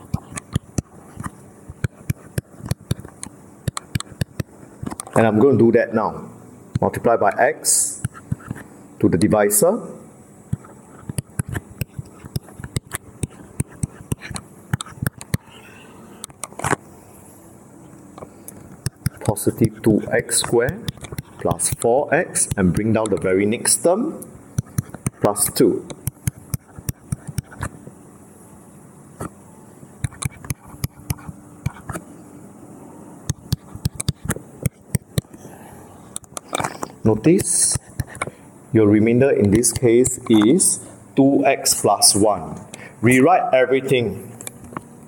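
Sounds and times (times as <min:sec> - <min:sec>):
stylus tapping on tablet screen: 0:00.0 - 0:05.1, 0:10.5 - 0:15.6, 0:18.7 - 0:19.3, 0:20.4 - 0:21.8, 0:24.6 - 0:25.2, 0:25.9 - 0:27.7, 0:30.0 - 0:32.0, 0:33.3 - 0:35.4
low background hiss: 0:00.0 - 0:45.0.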